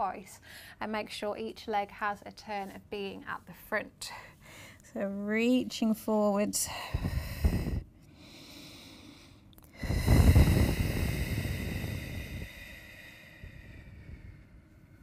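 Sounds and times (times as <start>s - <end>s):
woman breathing: 0.4s - 0.8s, 4.0s - 4.9s, 6.6s - 15.0s.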